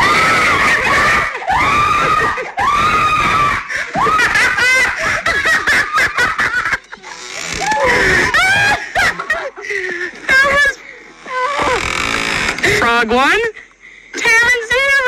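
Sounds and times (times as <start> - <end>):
woman screaming: 0.0 - 4.6
woman laughing: 3.7 - 10.7.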